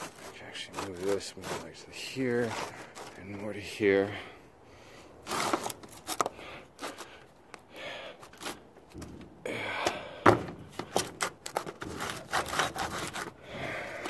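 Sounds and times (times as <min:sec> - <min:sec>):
bricks scraping on metal: 0:00.0 - 0:03.7, 0:10.5 - 0:14.0.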